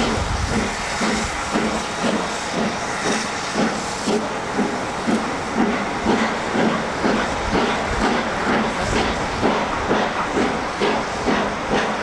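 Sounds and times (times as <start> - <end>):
steam hissing: 0.0 - 12.0
steam locomotive exhaust beats: 0.0 - 12.0.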